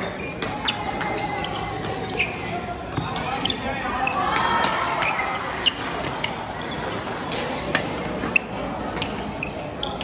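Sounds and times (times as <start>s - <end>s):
shoes squeaking on court: 0.0s - 10.0s.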